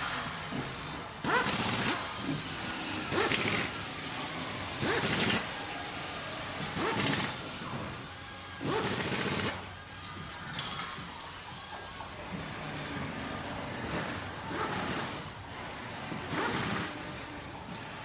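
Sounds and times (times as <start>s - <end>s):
machine noisy bursts: 0.0s - 7.8s
workshop background hum: 0.0s - 18.0s.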